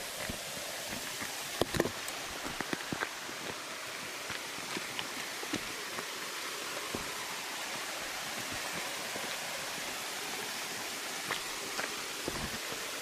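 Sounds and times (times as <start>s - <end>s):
faint footsteps on rock: 0.0s - 6.2s, 11.2s - 12.7s
waterfall and creek rushing: 0.0s - 13.0s.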